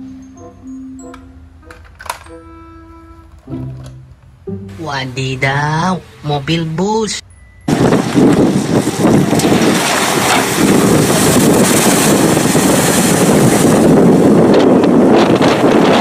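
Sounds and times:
wind buffeting microphone: 7.6 - 16.0
water splashing and rushing: 7.7 - 16.0.

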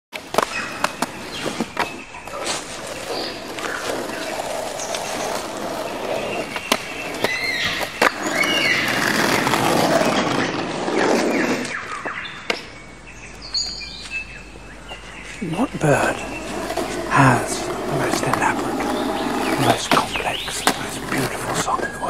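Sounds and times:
skateboard wheels rolling on asphalt: 0.1 - 22.0
skateboard clacking on curb: 0.2 - 12.7, 14.9 - 21.8.

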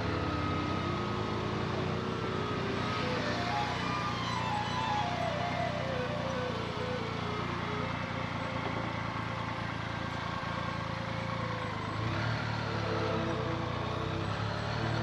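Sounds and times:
motorcycle engine humming: 0.0 - 15.0
background music: 2.9 - 7.4.

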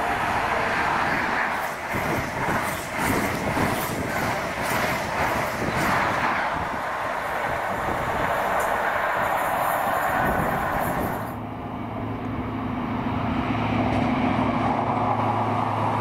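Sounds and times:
train wheels beating over rails: 0.0 - 11.4
diesel locomotive passing: 0.0 - 16.0.

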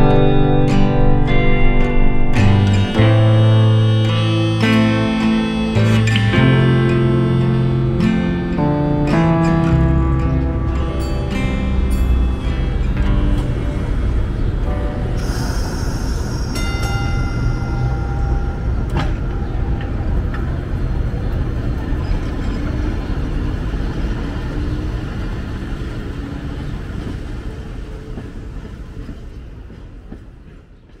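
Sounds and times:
ringing tone: 0.0 - 8.5, 15.2 - 20.3
streetcar rumbling on rails: 0.0 - 31.0.

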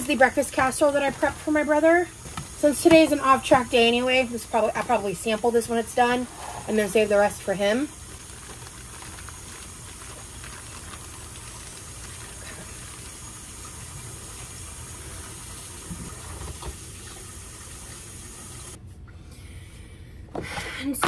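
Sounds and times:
tap water running into sink: 9.3 - 18.8.

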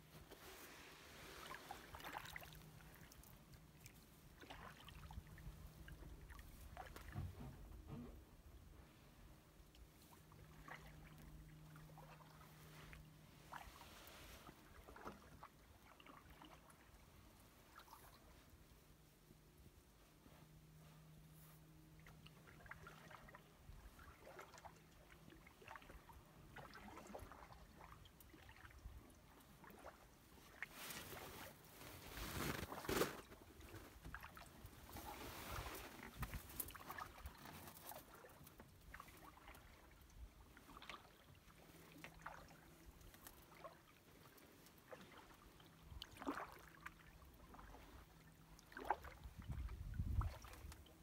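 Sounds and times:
canoe paddle strokes in water: 0.0 - 51.0
water dripping off paddle: 46.0 - 47.8.

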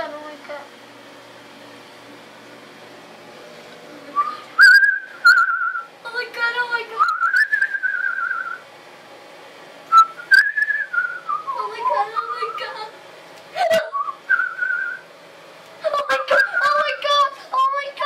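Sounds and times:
person whistling a warbling tune: 4.2 - 5.9, 7.0 - 8.6, 9.9 - 12.8, 13.7 - 15.0.

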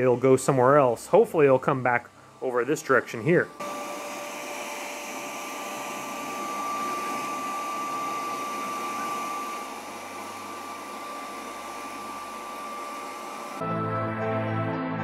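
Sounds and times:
high-pitched whine: 2.4 - 13.6
robot vacuum suction hiss: 3.6 - 13.6.

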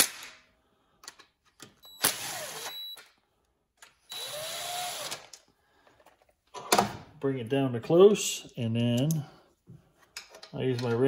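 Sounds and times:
cordless driver spinning screw: 2.0 - 2.8, 4.1 - 5.3.

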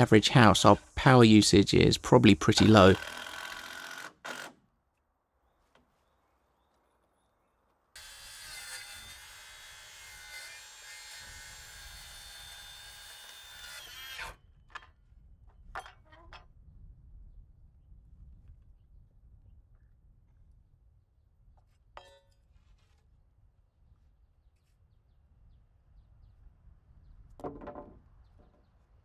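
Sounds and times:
circular saw cutting wood: 2.2 - 4.6, 8.0 - 14.4
drill-driver running: 2.6 - 4.6.

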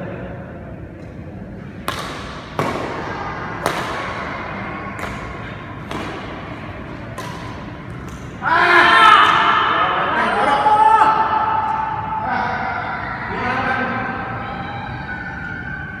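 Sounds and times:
racquets striking shuttlecock: 1.0 - 8.4.

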